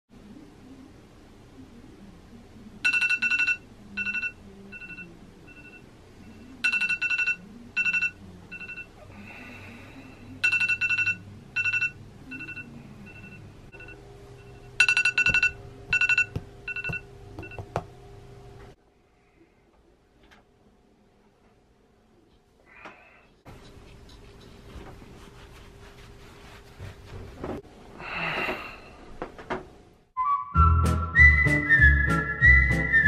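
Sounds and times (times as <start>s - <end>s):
phone alarm beeps: 2.8s - 5.8s, 10.4s - 17.7s.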